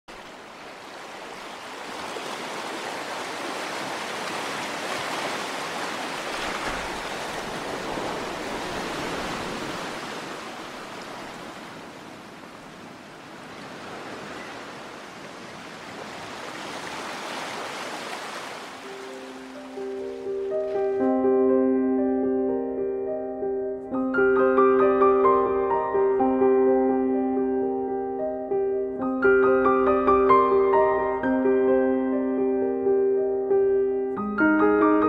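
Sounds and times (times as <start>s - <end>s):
surf washing over rocks: 0.1s - 20.0s.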